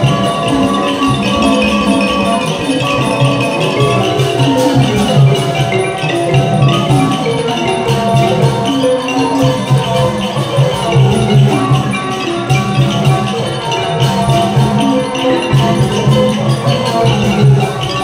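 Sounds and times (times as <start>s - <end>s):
traditional percussion ensemble: 0.0s - 18.0s.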